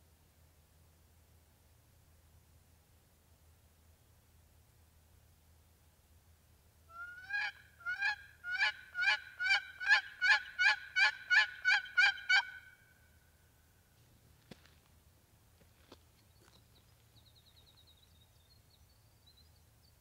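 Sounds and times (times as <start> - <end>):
turkey call hen yelps: 6.9 - 12.9.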